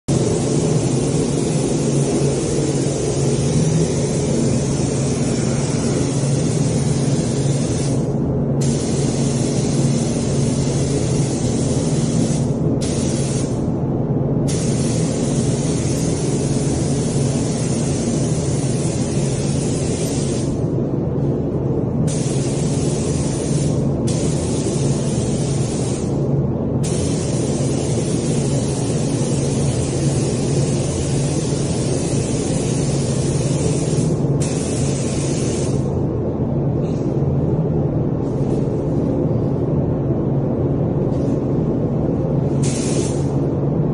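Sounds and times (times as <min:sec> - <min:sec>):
spray gun hissing: 0:00.1 - 0:13.6, 0:14.5 - 0:20.6, 0:22.1 - 0:26.2, 0:26.8 - 0:35.9, 0:42.6 - 0:43.3
low hum: 0:00.1 - 0:35.1.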